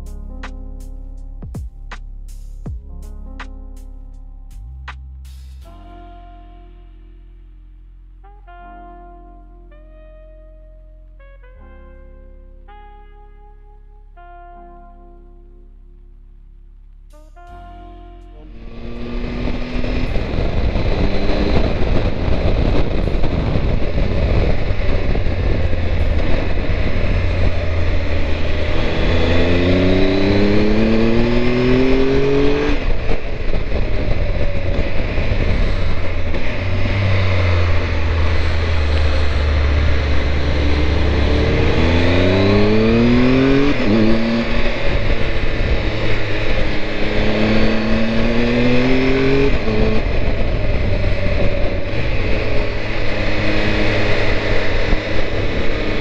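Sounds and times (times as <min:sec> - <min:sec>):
motorcycle engine accelerating: 0:17.1 - 0:56.0
wind rush: 0:18.5 - 0:56.0.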